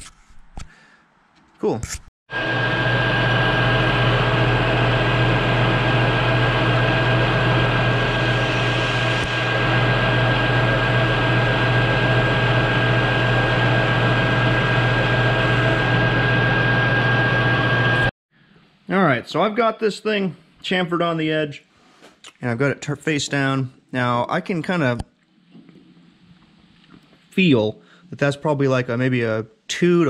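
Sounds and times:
high whine: 0:02.3 - 0:18.1
lathe motor drone: 0:02.3 - 0:18.1.

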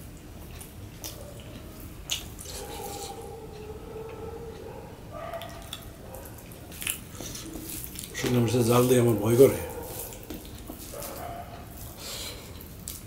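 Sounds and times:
faint steady hum: 0:00.0 - 0:13.0
wet mouth clicks and smacks: 0:02.1 - 0:03.0, 0:05.3 - 0:08.2.

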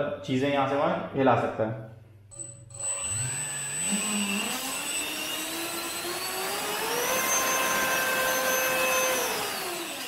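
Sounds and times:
electric fan motor whining: 0:02.7 - 0:10.0.

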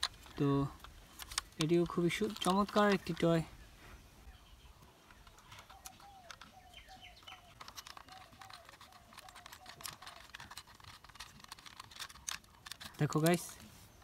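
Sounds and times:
bird chirping: 0:01.5 - 0:14.0
screwdriver clicking on plastic: 0:07.2 - 0:13.4.

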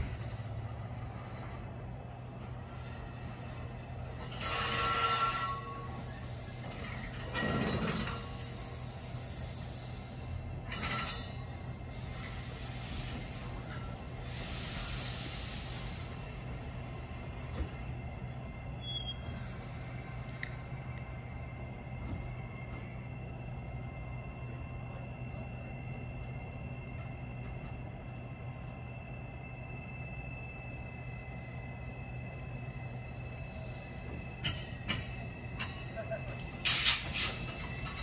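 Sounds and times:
train car rolling slowly: 0:00.0 - 0:38.0
faint squeal: 0:04.2 - 0:08.7, 0:17.3 - 0:20.9.

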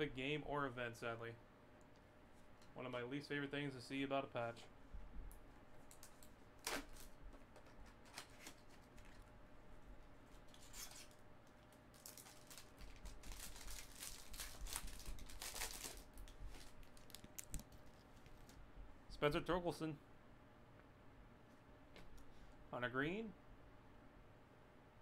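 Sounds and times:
plastic wrapping torn and crinkled: 0:05.8 - 0:09.2, 0:10.5 - 0:18.0.

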